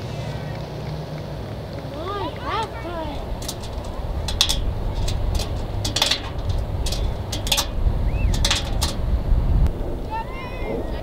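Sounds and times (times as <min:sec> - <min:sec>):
wind on microphone: 0:02.6 - 0:11.0
sharp clicks and clinks: 0:03.2 - 0:09.0.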